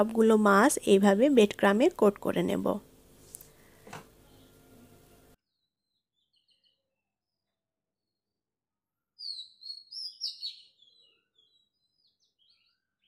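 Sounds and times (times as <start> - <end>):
small birds chirping: 5.8 - 6.8, 9.2 - 13.0.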